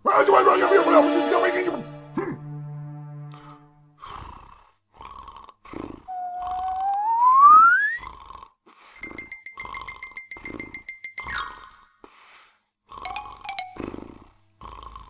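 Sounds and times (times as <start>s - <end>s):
cartoon snoring: 4.0s - 7.1s, 8.0s - 8.9s, 12.9s - 15.0s
rapid high ticking: 9.0s - 11.8s.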